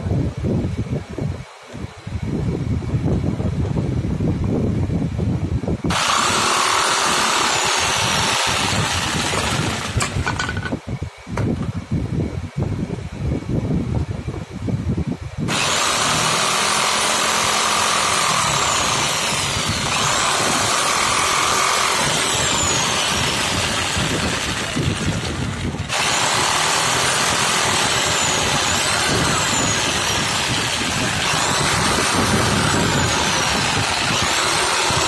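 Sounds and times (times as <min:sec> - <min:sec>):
jigsaw cutting wood: 0:05.9 - 0:10.7, 0:15.5 - 0:35.0.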